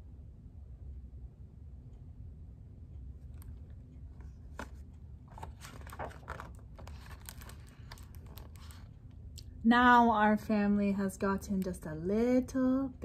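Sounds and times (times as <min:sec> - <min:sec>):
book pages turning: 0:03.2 - 0:09.0
paper rustling and crinkling: 0:04.2 - 0:08.9.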